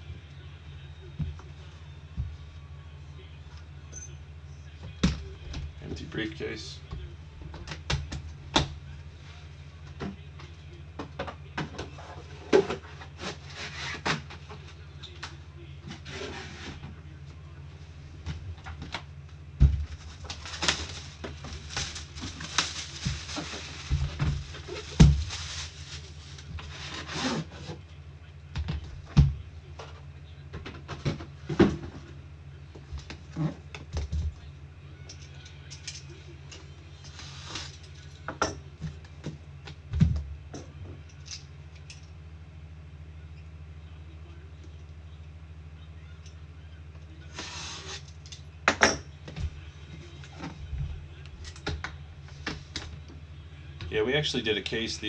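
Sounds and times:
low steady hum: 0.0s - 55.0s.

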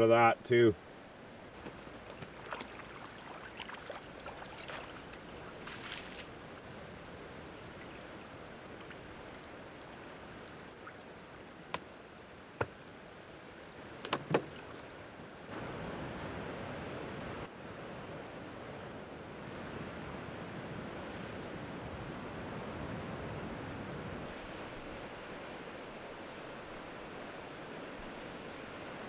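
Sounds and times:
creek trickling: 1.3s - 16.4s
water splashing by hand: 1.6s - 6.4s.

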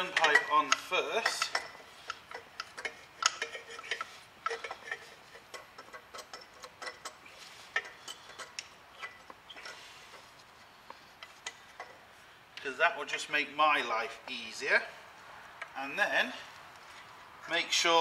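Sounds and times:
metallic clicks and knocks: 0.0s - 10.3s, 11.2s - 12.0s.

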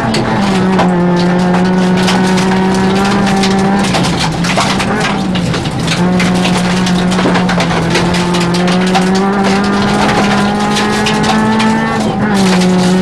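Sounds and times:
clicks and rattles: 0.0s - 13.0s
rally car engine accelerating: 0.0s - 13.0s
road noise: 0.0s - 13.0s.

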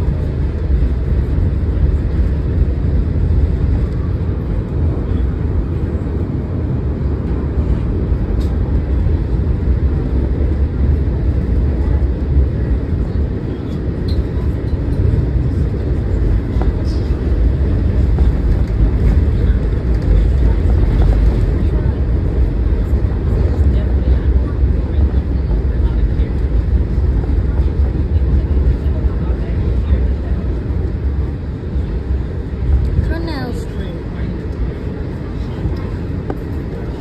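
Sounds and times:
subway train rumbling: 0.0s - 37.0s.

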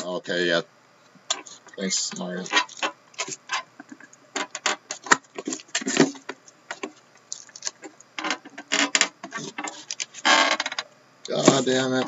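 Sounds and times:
shrink wrap crinkling: 4.9s - 7.9s.

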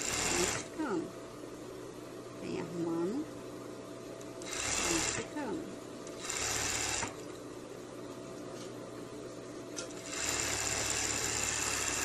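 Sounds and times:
sewing machine stitching: 0.0s - 0.7s, 4.4s - 5.3s, 6.1s - 7.2s, 10.0s - 12.0s
faint machine hum: 0.0s - 12.0s.

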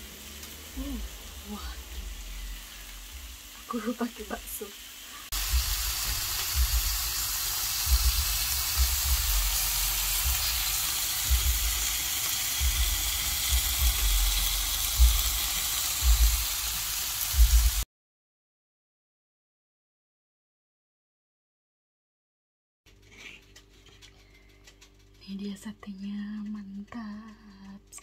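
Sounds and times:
skewers sizzling on a grill: 0.0s - 17.8s
low thumps: 5.3s - 7.2s, 7.8s - 11.9s, 12.6s - 15.4s, 16.0s - 16.6s.

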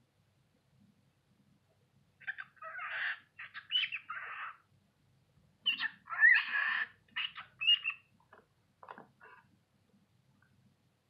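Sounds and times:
cockatiel chattering speech-like: 2.2s - 4.6s, 5.7s - 8.0s.

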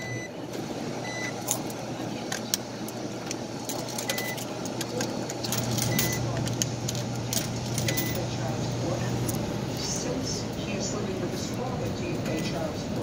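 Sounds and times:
low machine hum: 0.0s - 13.0s
coins clicking into dryer: 1.2s - 8.5s.

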